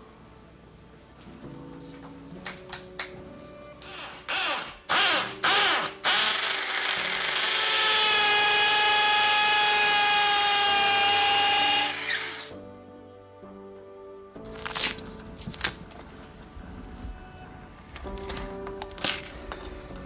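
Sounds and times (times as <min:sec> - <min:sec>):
power drill boring into plaster: 0:03.8 - 0:12.5.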